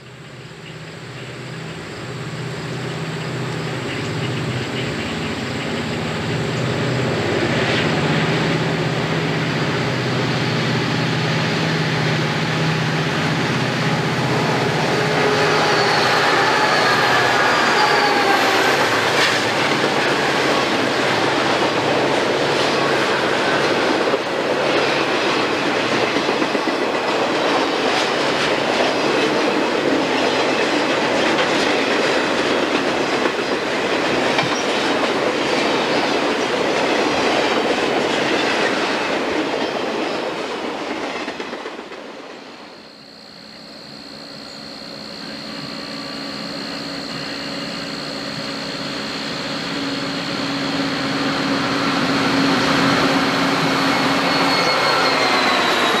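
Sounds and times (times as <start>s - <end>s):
diesel locomotive engine drone: 0.0s - 56.0s
train wheel clatter: 2.8s - 42.8s, 45.4s - 56.0s
metallic wheel squeals: 14.3s - 19.6s, 52.0s - 56.0s.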